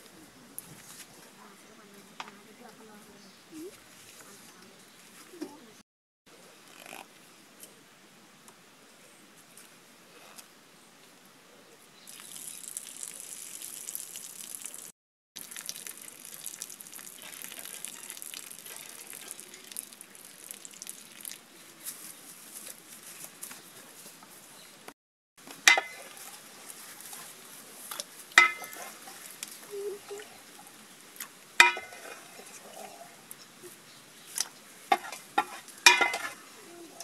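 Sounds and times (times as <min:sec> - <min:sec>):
water splashing onto grass: 0:12.1 - 0:21.6, 0:25.6 - 0:32.8
metal bowls clinking: 0:25.6 - 0:27.3, 0:28.4 - 0:30.8, 0:31.6 - 0:33.0, 0:34.9 - 0:36.4.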